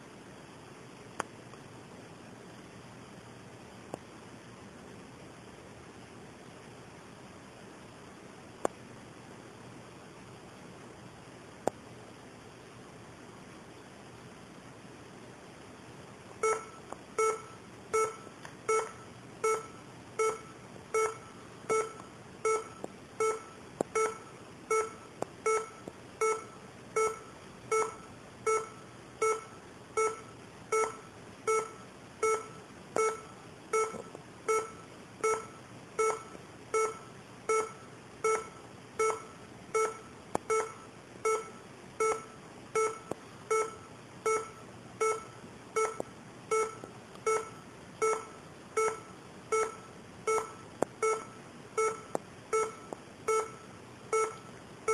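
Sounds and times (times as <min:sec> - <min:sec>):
laptop alert beeps: 0:16.4 - 0:54.9.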